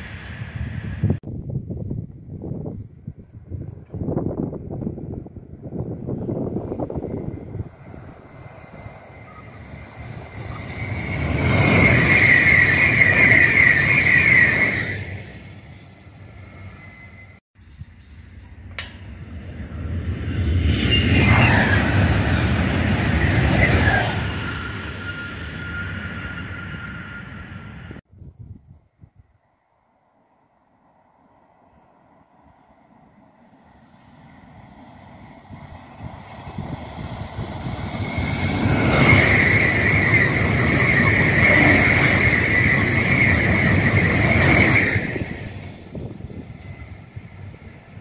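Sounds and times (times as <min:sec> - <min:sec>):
electric train passing at speed: 0:00.0 - 0:28.1, 0:29.4 - 0:48.0
thin steady whistle: 0:08.7 - 0:17.4, 0:23.1 - 0:27.8, 0:37.7 - 0:45.4.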